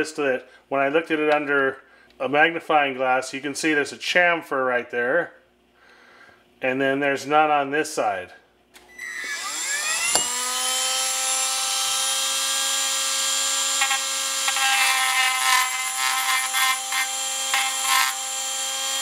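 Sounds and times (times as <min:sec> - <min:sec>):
rotary tool whining: 0:08.8 - 0:19.0
rotary tool grinding metal: 0:09.0 - 0:19.0.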